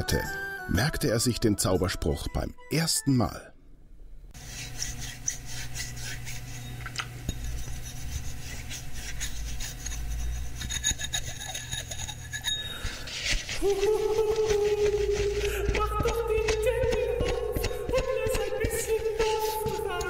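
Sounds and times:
low steady hum: 3.2 - 20.0
rubbing and scrubbing strokes: 4.4 - 20.0.

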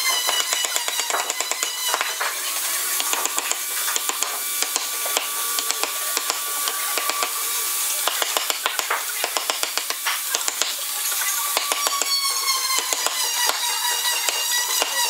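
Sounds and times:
mallet tapping chisel into wood: 0.3 - 2.3, 8.0 - 10.7, 11.6 - 12.2, 12.8 - 13.6.

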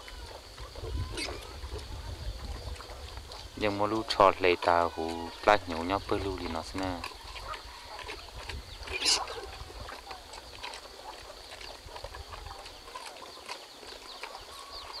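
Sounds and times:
high-pitched animal call: 0.0 - 1.8, 8.8 - 10.1
small animal sounds: 0.0 - 15.0.

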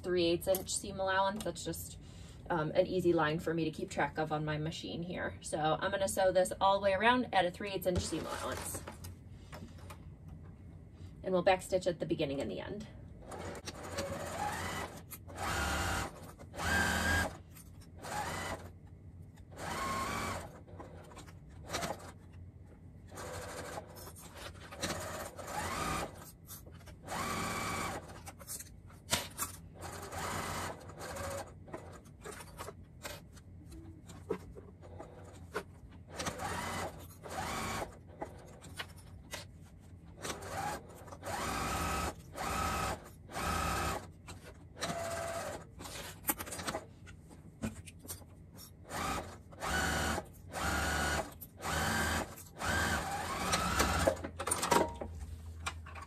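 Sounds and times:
electric sewing machine stitching: 13.2 - 17.4, 18.0 - 18.7, 19.5 - 22.2, 23.1 - 24.0, 24.8 - 26.2, 27.0 - 28.2, 29.8 - 32.0, 36.1 - 38.6, 40.2 - 44.1, 44.8 - 45.7, 48.9 - 54.2.

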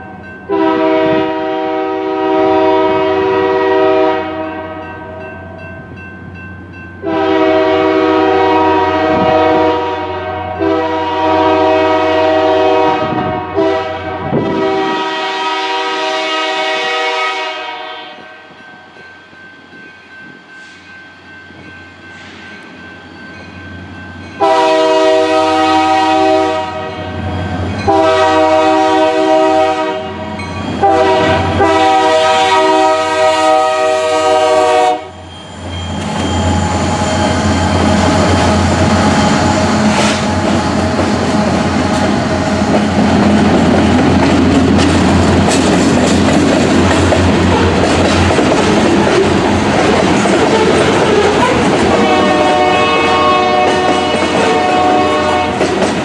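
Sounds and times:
locomotive air horn blasts: 0.5 - 4.9, 7.0 - 18.4, 24.4 - 27.2, 27.9 - 35.2, 51.4 - 55.7.

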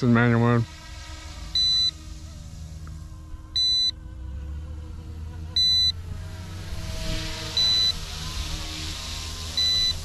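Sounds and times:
faint helicopter motor whine: 0.0 - 10.0
short high electronic beeps: 1.6 - 1.9, 3.6 - 3.9, 5.6 - 6.0, 7.6 - 8.0, 9.6 - 10.0
wind rumble on microphone: 5.5 - 10.0.

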